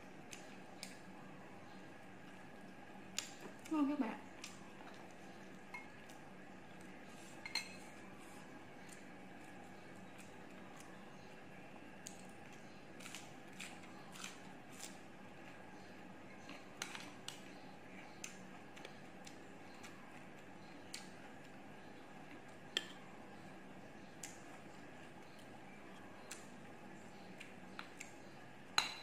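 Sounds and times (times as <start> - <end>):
clink on dish: 7.4 - 7.8, 28.8 - 29.0.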